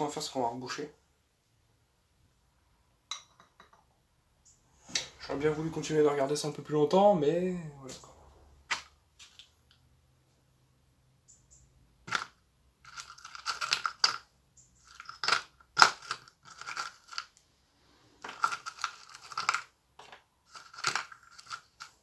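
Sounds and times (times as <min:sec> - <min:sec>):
small parts clicking in a bowl: 0:12.1 - 0:17.4, 0:18.2 - 0:19.7, 0:20.5 - 0:22.0.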